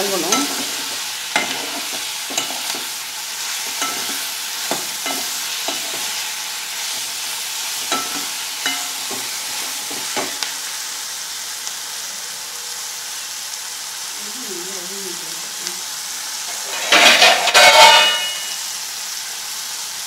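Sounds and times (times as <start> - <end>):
vegetables sizzling in oil: 0.0 - 20.0
metal ladle scraping a pan: 0.2 - 7.2, 16.5 - 18.6.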